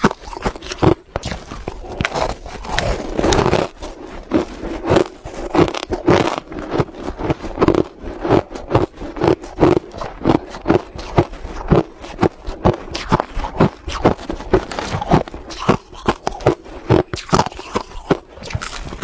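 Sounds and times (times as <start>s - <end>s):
crushed ice crunching: 0.0s - 19.0s.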